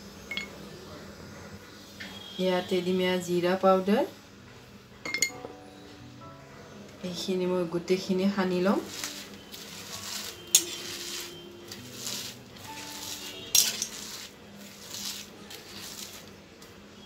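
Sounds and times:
clinks against steel plate: 0:05.0 - 0:05.5
wet cabbage squishing by hand: 0:08.9 - 0:16.3.

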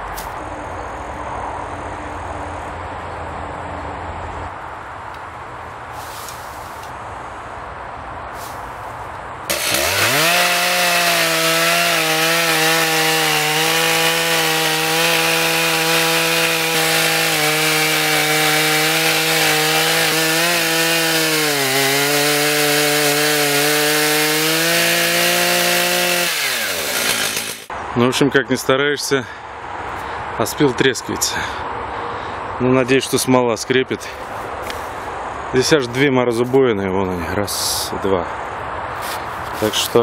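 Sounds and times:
chainsaw cutting wood: 0:09.5 - 0:27.7.

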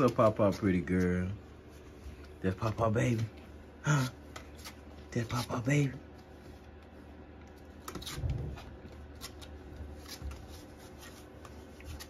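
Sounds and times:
puppy claws scratching on wood: 0:07.8 - 0:12.0.

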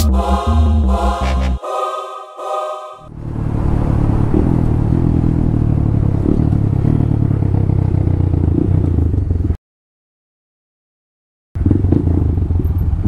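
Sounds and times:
motorcycle engine running: 0:04.4 - 0:09.6, 0:11.6 - 0:13.0.

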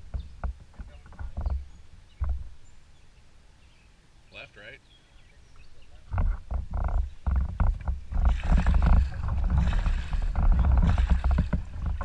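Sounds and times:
wind rumbling on microphone: 0:00.0 - 0:03.0, 0:05.2 - 0:12.0
paddle splashing in water: 0:05.6 - 0:12.0.

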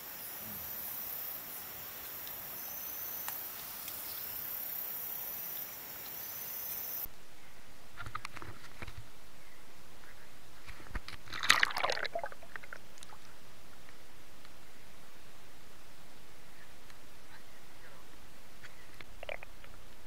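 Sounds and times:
thin high insect call: 0:00.0 - 0:08.4
crickets and insects chirring: 0:00.0 - 0:08.8, 0:11.5 - 0:20.0.

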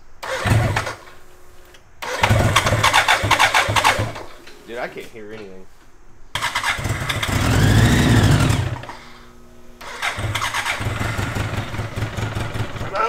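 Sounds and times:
kart engine revving unevenly: 0:00.2 - 0:01.1, 0:02.0 - 0:04.6, 0:06.4 - 0:13.0.

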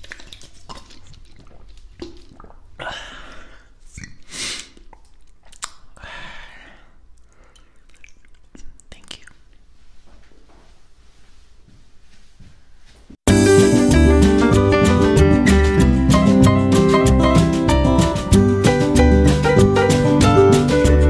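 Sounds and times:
swallowing and lip smacks: 0:00.0 - 0:02.8, 0:03.8 - 0:06.0, 0:07.1 - 0:09.6.

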